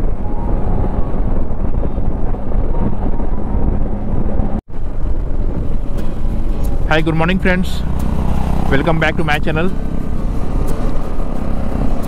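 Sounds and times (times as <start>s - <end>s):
motorcycle engine drone: 0.0s - 12.0s
wind: 0.0s - 12.0s
tyre noise on wet road: 4.7s - 12.0s.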